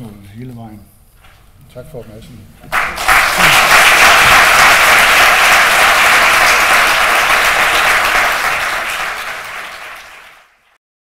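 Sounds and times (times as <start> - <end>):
audience applauding: 2.7 - 10.8.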